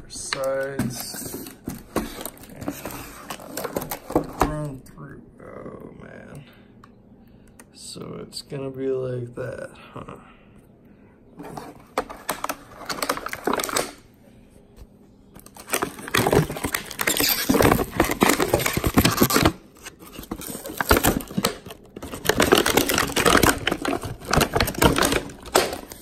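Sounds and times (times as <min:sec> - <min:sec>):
plastic wrap crinkling and tearing: 0:12.0 - 0:14.0, 0:15.4 - 0:26.0.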